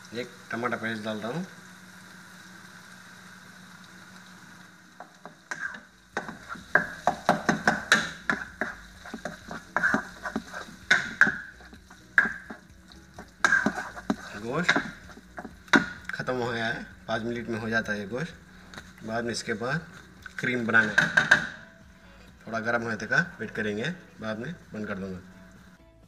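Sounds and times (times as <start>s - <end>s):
faint sizzle: 0.0s - 25.8s
spoon scraping a pot: 5.5s - 15.8s.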